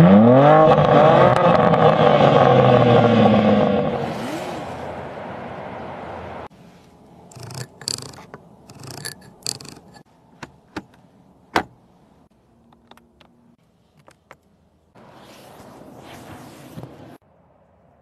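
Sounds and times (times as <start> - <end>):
rubbing handling noise: 6.6 - 17.2.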